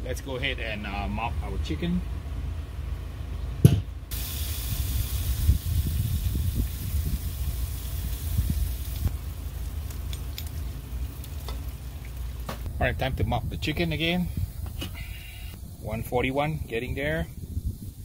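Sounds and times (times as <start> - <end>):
sauce sizzling on a grill: 4.1 - 12.5.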